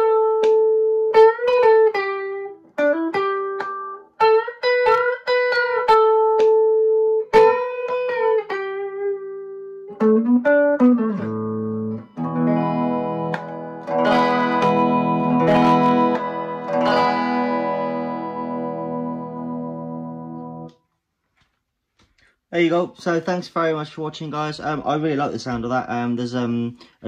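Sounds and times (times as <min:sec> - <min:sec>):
electric guitar playing: 0:00.0 - 0:20.8.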